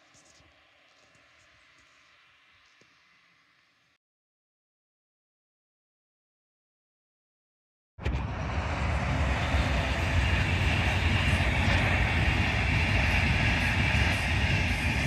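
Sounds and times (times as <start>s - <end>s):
passenger train rumbling past: 8.0s - 15.0s
wheels hissing on rails: 8.2s - 15.0s.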